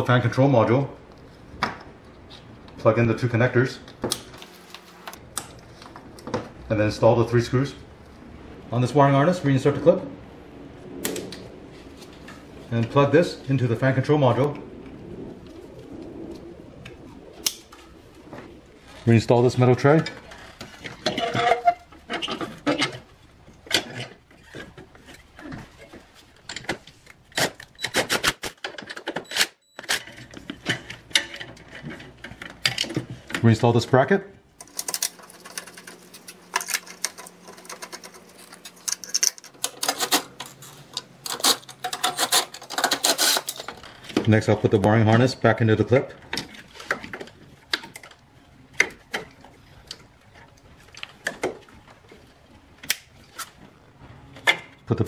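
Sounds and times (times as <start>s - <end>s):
metal parts clicking and knocking: 34.6s - 44.0s.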